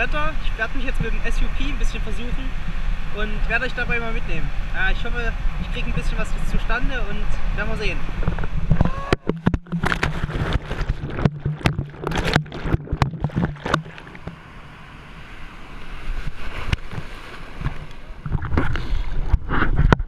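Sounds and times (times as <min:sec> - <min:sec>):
waves washing: 0:00.0 - 0:19.9
water splashing and sloshing: 0:05.6 - 0:20.0
water slapping on camera housing: 0:08.2 - 0:14.4, 0:16.6 - 0:20.0.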